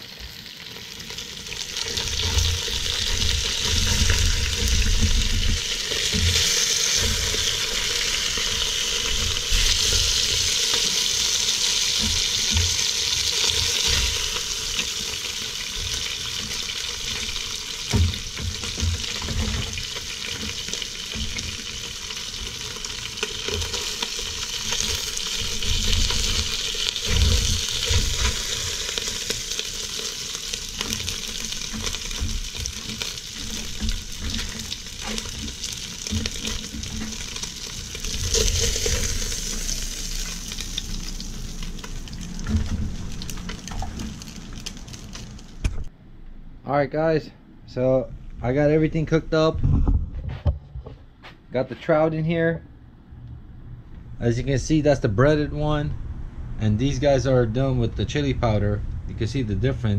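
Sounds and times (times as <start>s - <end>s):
fish sizzling in hot oil: 0.0s - 45.8s.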